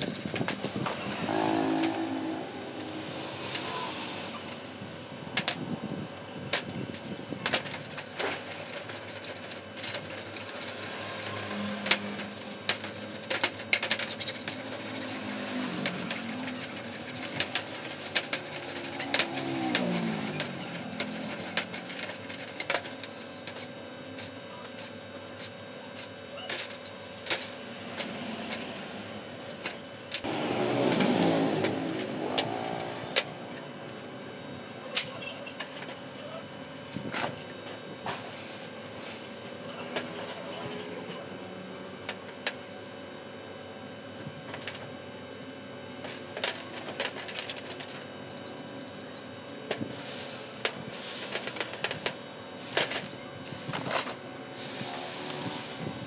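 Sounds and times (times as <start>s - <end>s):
wire brush scrubbing metal: 6.9s - 33.7s.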